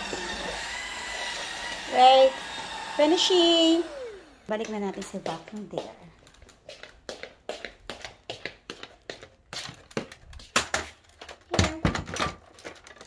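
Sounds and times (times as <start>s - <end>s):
footsteps on hard floor: 4.6s - 10.6s.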